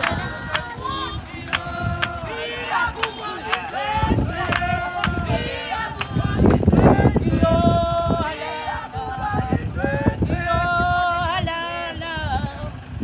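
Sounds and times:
people singing: 0.0 - 12.8.

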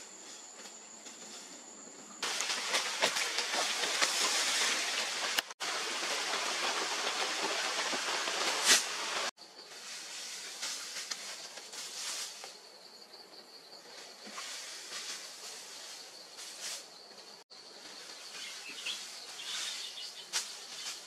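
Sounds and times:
cut grass rustling and crackling: 2.2 - 12.6, 17.9 - 21.0.

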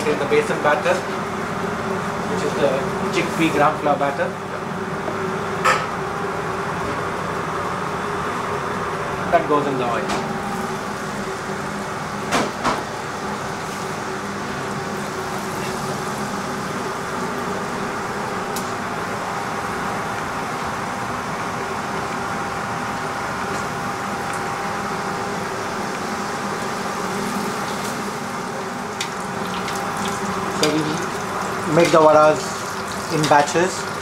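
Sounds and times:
kitchen hum with steady tones: 0.0 - 34.0
oil sizzling while deep-frying: 12.9 - 18.7, 22.6 - 34.0.

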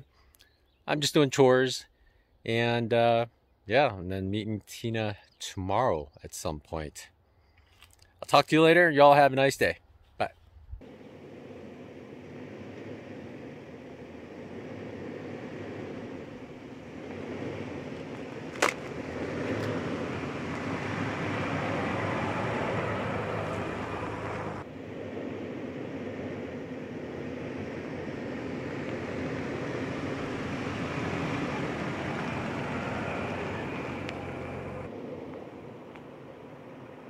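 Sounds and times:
tyres on dirt: 10.8 - 24.7
vehicle engine running: 10.8 - 37.0.

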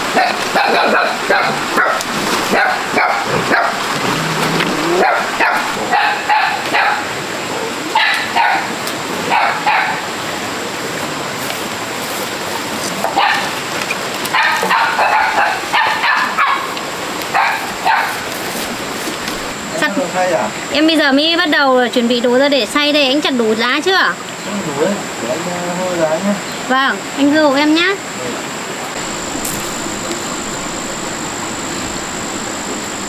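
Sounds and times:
dog barking and yipping: 0.1 - 3.8, 5.0 - 7.1, 7.9 - 10.1, 13.2 - 13.6, 14.3 - 18.3.

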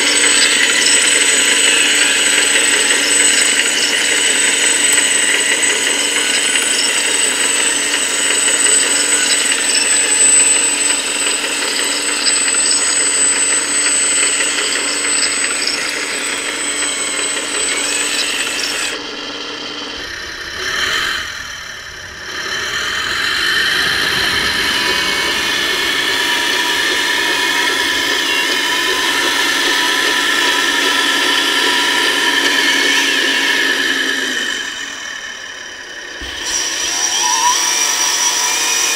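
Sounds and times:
electric whine and gear noise: 0.0 - 38.9
hydraulic pump whirring: 0.0 - 38.9.

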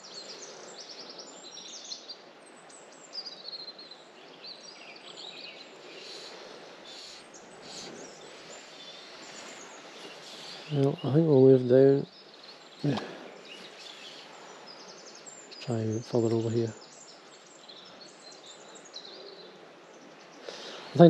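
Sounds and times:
river water rushing: 0.0 - 15.7
songbird chirping and trilling: 0.0 - 21.0.

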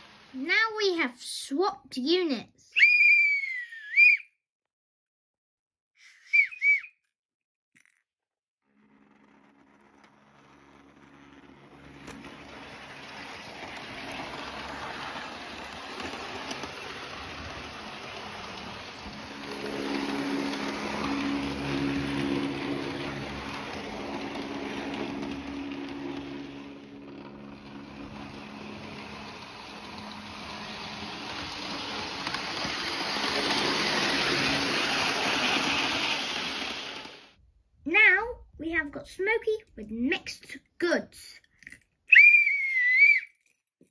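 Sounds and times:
model train motor hum: 8.7 - 37.4
wheels rumbling on rails: 8.7 - 37.4.

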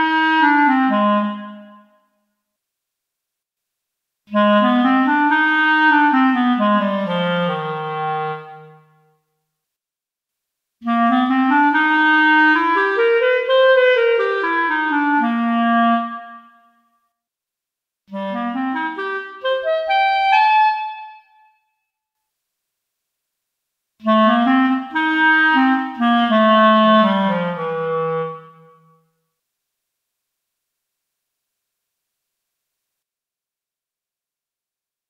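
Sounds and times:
clarinet melodic phrases: 0.0 - 2.1, 4.3 - 9.2, 10.8 - 16.8, 18.1 - 21.8, 24.0 - 29.1.

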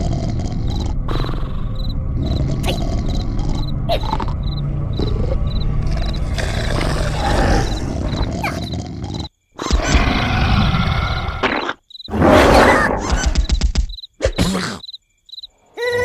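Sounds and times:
cartoon creature vocalizing: 0.0 - 4.4.

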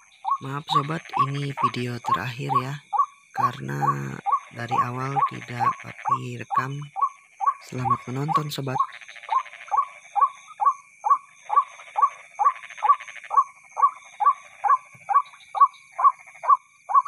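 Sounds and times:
waterhen calling: 0.0 - 17.0.

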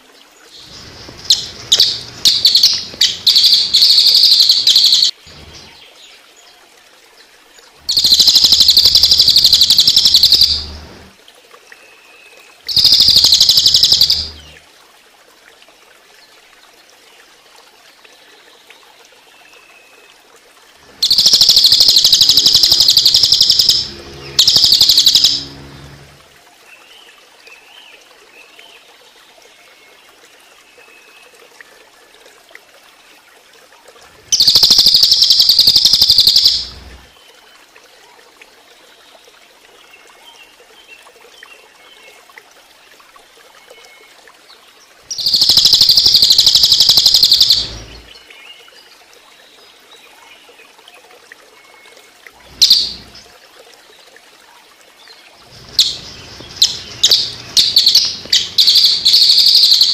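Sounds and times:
running water trickling: 0.0 - 59.9
jay rattling trills: 1.2 - 5.7, 21.0 - 26.0, 52.6 - 53.2, 55.5 - 59.9.

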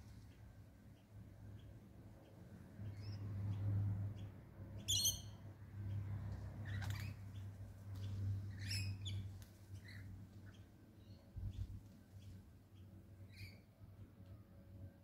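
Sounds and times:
steady low hum: 0.0 - 15.0
birds chirping and screeching: 2.8 - 12.3, 13.2 - 13.7.

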